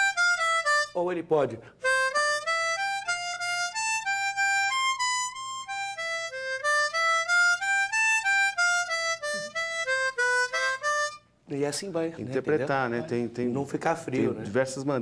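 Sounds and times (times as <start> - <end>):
harmonica melody: 0.0 - 11.5.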